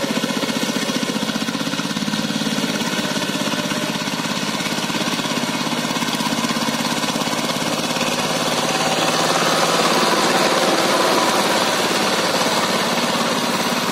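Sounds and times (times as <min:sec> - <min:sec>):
diesel engine chugging: 0:00.0 - 0:13.9.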